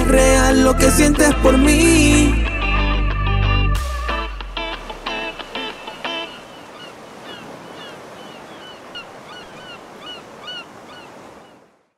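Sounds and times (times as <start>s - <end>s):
surf washing onto beach: 4.4s - 11.8s
birds chirping: 4.6s - 11.9s.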